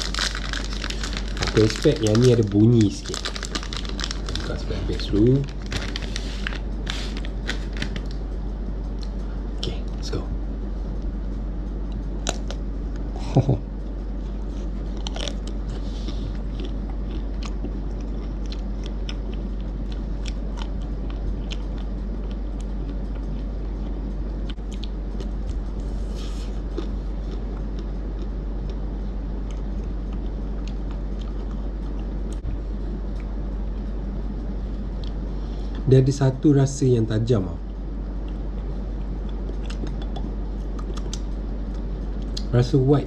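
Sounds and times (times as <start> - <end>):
ice cream coating cracking: 0.0 - 8.2
low hum: 0.0 - 43.0
chewing: 14.2 - 28.8, 29.4 - 32.4, 38.2 - 42.5.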